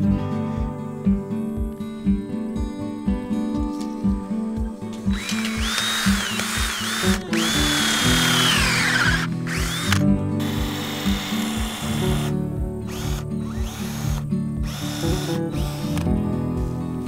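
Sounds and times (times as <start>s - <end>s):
background music with steady beat: 0.0s - 17.0s
cordless drill boring into wood: 5.1s - 16.1s.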